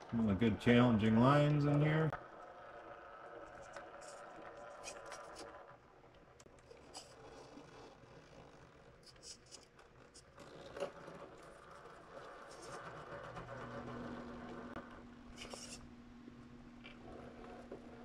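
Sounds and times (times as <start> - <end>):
tires scraping and clicking on rock: 1.4 - 14.8.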